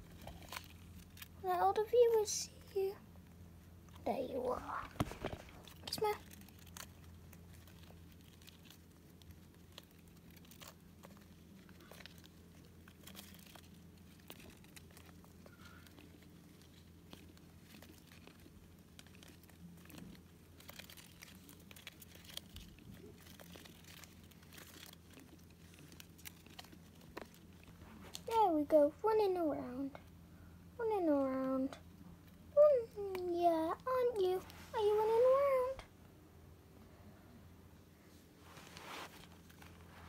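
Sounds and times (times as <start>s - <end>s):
hamster ball clicks and crinkles: 0.0s - 28.8s, 39.1s - 39.9s
steady low hum: 0.0s - 40.0s.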